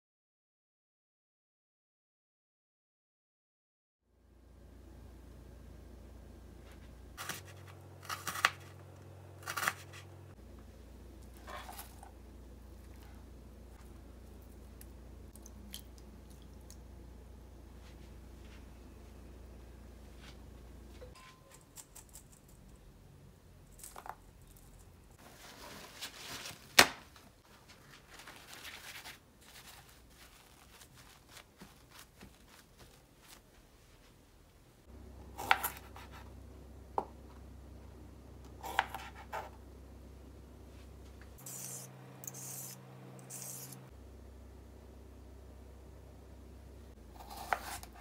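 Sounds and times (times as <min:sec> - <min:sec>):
peeler scraping cucumber: 0:41.4 - 0:43.8, 0:47.1 - 0:48.0.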